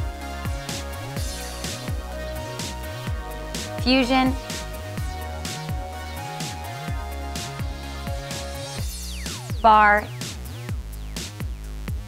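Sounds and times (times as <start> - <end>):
upbeat electronic music: 0.0 - 12.0
kick drum beat: 6.9 - 12.0.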